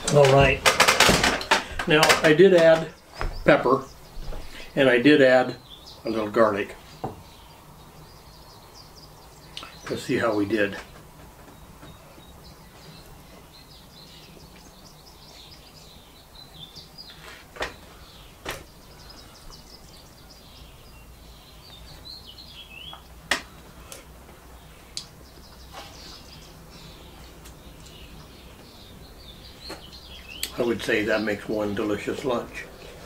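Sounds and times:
small birds chirping: 0:00.0 - 0:33.0
sharp clicks: 0:29.6 - 0:30.6.

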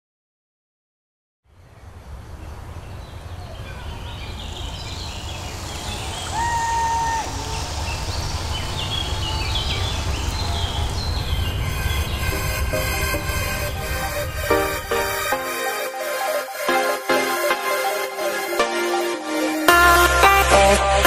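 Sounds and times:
birds whistling: 0:02.9 - 0:12.6
low synth drone: 0:04.2 - 0:21.0
low rumble: 0:04.6 - 0:15.4
falling synth sweep: 0:04.7 - 0:20.7
clean held tone: 0:09.8 - 0:20.3
high stepping synth notes: 0:09.8 - 0:21.0.

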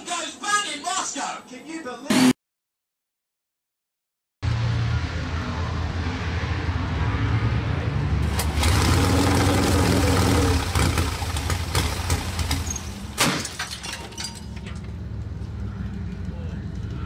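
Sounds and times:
motorcycle engine revving: 0:04.4 - 0:13.2.

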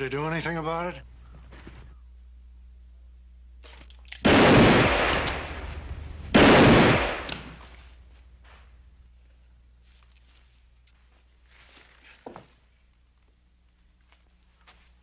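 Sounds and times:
revolver shots echoing: 0:04.2 - 0:07.6.

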